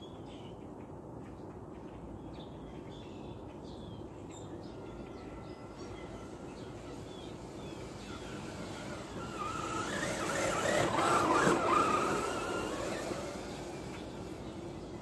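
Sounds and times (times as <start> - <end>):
toy truck electric motor whining: 5.9 - 15.0.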